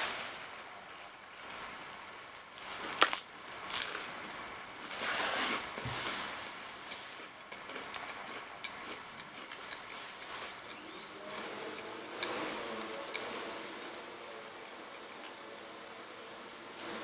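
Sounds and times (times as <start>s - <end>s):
rice cake bitten and chewed: 2.5s - 4.1s, 6.0s - 13.5s.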